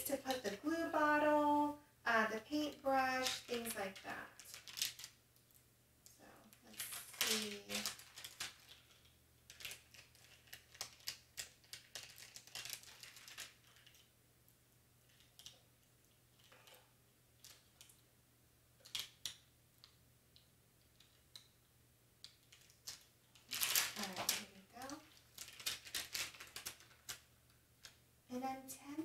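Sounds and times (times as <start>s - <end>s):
crinkling of transfer tape: 0.0s - 1.7s, 2.3s - 14.1s, 16.3s - 18.0s, 22.2s - 28.0s.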